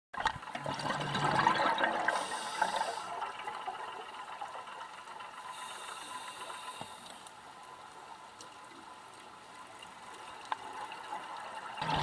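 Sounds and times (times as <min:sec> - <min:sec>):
regulator bubbles gurgling: 0:00.4 - 0:05.8, 0:10.6 - 0:12.0
low hiss: 0:02.1 - 0:11.6.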